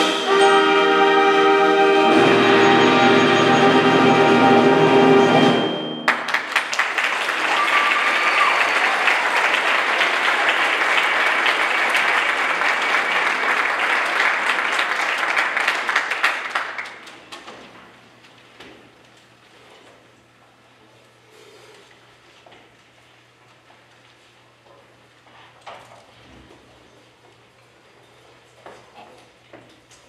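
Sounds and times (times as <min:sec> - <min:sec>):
audience applause: 0:06.1 - 0:17.1.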